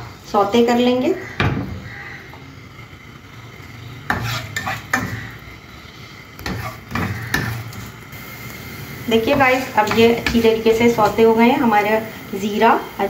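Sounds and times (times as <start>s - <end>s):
oil sizzling: 0.0s - 13.0s
spatula scraping spices in a pan: 3.9s - 8.0s, 9.3s - 11.2s.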